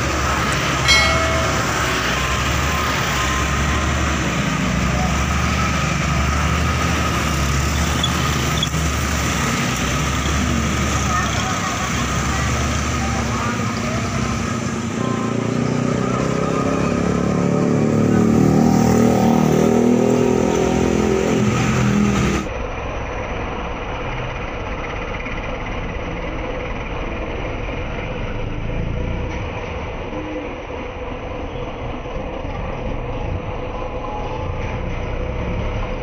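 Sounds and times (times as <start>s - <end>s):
rough engine rumble: 0.0s - 36.0s
diesel engine revving: 1.4s - 22.5s.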